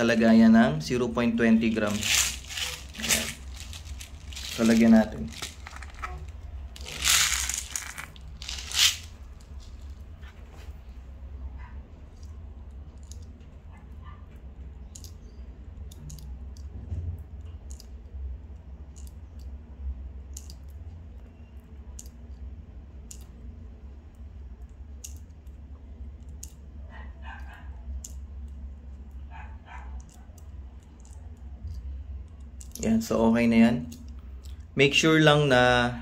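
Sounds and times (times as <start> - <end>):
low steady hum: 0.0 - 36.0
small clicks of pellets loaded: 6.8 - 9.8.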